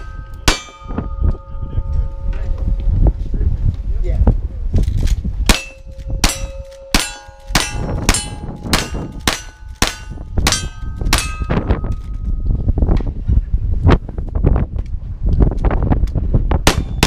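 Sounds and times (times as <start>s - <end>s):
steel plate ringing: 0.0s - 2.8s, 5.5s - 11.9s
gunshots: 5.5s - 11.4s, 16.7s - 17.0s.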